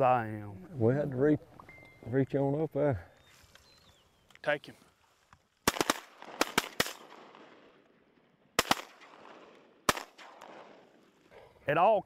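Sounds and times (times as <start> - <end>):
shotgun shots with echo: 5.6 - 7.8, 8.6 - 10.9.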